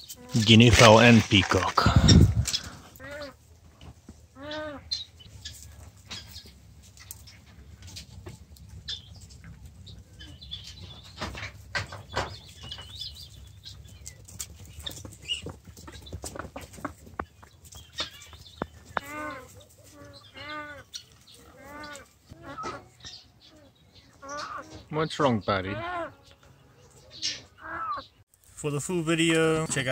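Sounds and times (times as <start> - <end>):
birds pecking grain taps: 0.0 - 4.3, 4.9 - 23.2
repeated rising and falling bird calls: 8.8 - 28.2
high bird chirping: 20.0 - 28.2.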